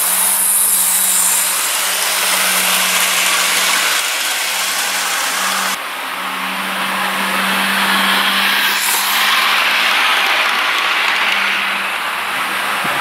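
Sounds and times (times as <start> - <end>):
model train motors whirring: 0.0 - 13.0
train rushing past: 0.0 - 13.0.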